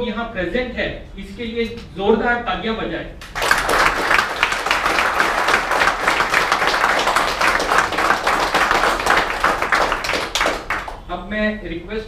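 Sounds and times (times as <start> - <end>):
audience applauding: 3.2 - 11.1.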